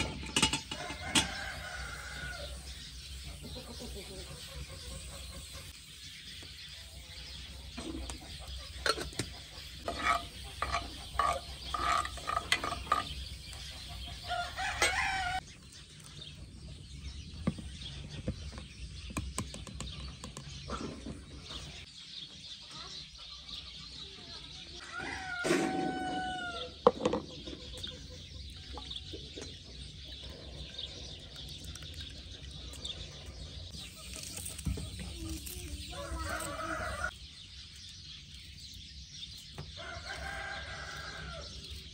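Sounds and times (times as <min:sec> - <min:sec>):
chickens clucking: 0:00.0 - 0:15.4, 0:27.2 - 0:37.2
rooster crowing: 0:00.8 - 0:02.6, 0:24.8 - 0:26.7, 0:36.0 - 0:37.1, 0:39.8 - 0:41.6.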